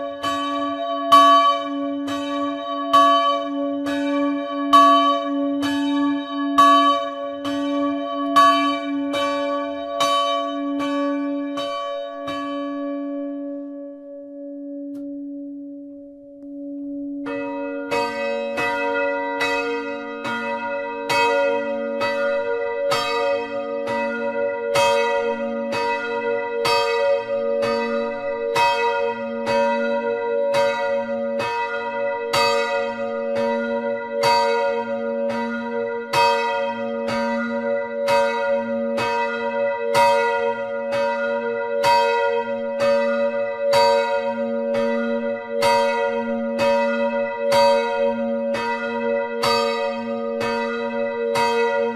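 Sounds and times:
church bell ringing: 0.0 - 51.9.

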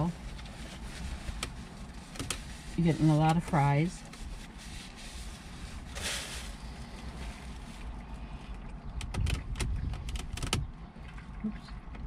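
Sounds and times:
low rumble in car cabin: 0.0 - 12.0
wrapper rustle: 0.2 - 7.9.

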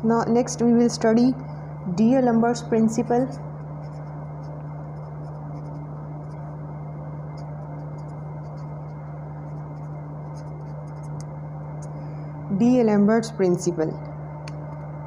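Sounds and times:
steady low hum: 0.0 - 15.0
marker pen scratching on paper: 3.2 - 6.5, 7.3 - 11.2.

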